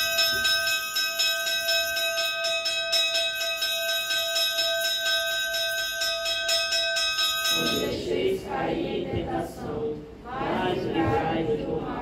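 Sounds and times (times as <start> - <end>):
altar bells ringing: 0.0 - 8.2.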